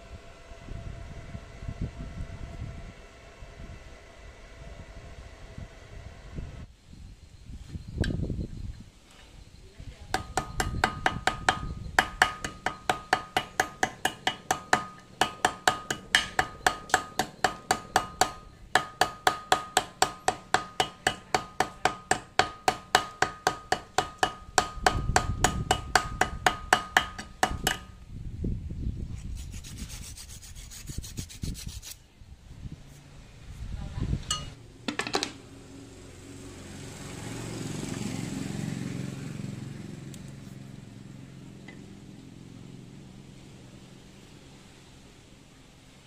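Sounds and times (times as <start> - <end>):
hammer striking steel plate: 10.2 - 28.0
rough scraping: 29.1 - 32.1.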